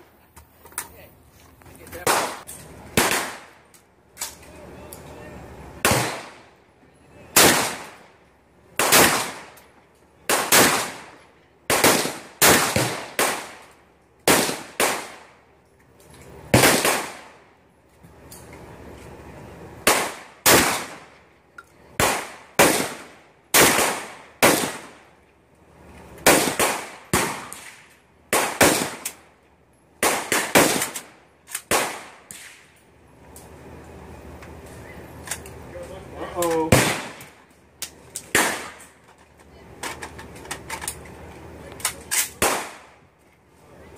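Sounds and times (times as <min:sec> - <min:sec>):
shotgun blasts with echo: 0:03.0 - 0:03.5, 0:05.8 - 0:06.5, 0:07.4 - 0:08.0, 0:08.8 - 0:09.6, 0:16.5 - 0:17.4, 0:22.0 - 0:25.0, 0:26.2 - 0:29.1, 0:36.7 - 0:37.3, 0:42.4 - 0:43.0.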